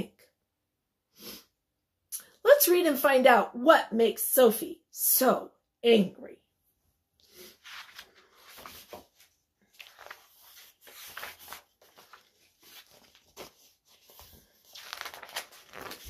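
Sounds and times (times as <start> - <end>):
book pages rustling: 7.2 - 16.0.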